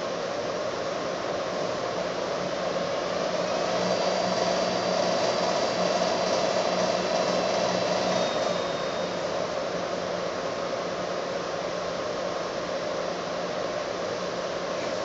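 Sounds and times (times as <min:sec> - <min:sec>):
mixer motor whirring: 0:03.3 - 0:09.6.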